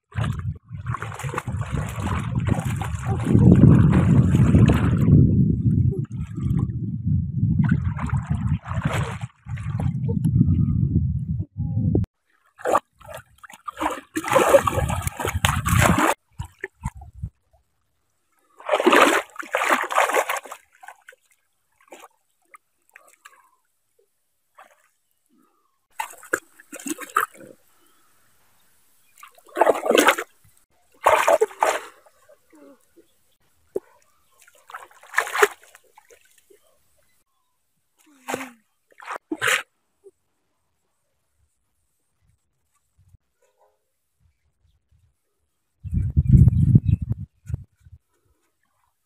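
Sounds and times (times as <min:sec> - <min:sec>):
muddy water splashing: 0:00.0 - 0:06.8, 0:07.5 - 0:10.2, 0:12.2 - 0:17.3, 0:18.4 - 0:23.6, 0:24.5 - 0:25.0, 0:25.9 - 0:28.0, 0:29.0 - 0:37.2, 0:38.0 - 0:39.7
low rumble: 0:00.2 - 0:08.6, 0:09.6 - 0:12.1.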